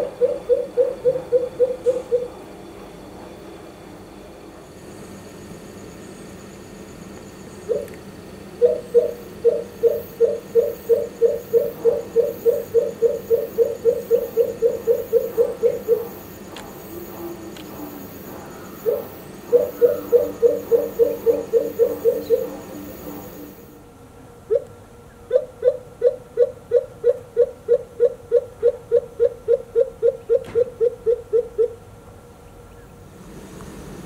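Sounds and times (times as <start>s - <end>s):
bird deep hooting call: 0.0s - 2.5s, 7.5s - 23.7s, 24.5s - 31.8s
low falling bird call: 18.5s - 23.4s.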